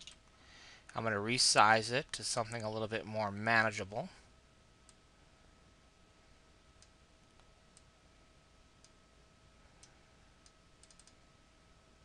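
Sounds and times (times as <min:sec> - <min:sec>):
computer mouse clicks: 0:09.8 - 0:11.2.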